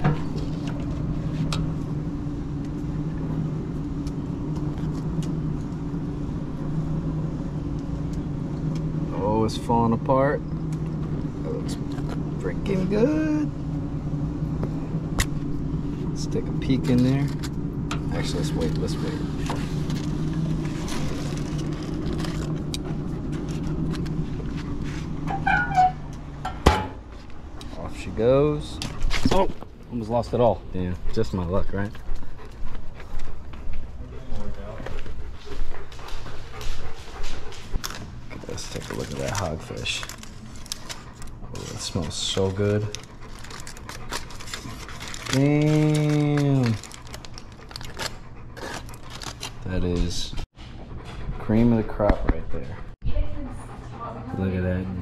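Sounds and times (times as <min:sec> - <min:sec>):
low motor hum: 0:00.0 - 0:55.0
aluminium foil rustling: 0:15.7 - 0:26.0, 0:37.8 - 0:50.3.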